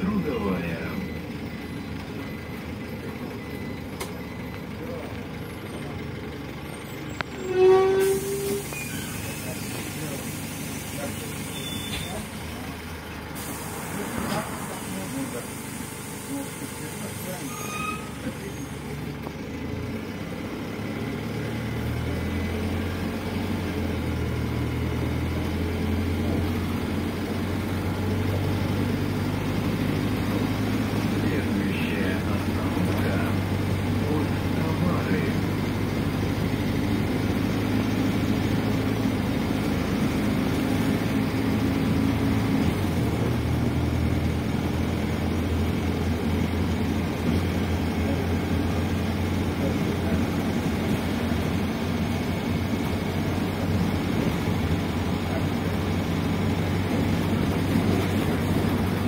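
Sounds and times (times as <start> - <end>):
bus engine and road noise: 0.0 - 59.0
loud steady beep: 0.2 - 5.0, 11.5 - 12.2
click: 4.0 - 4.2.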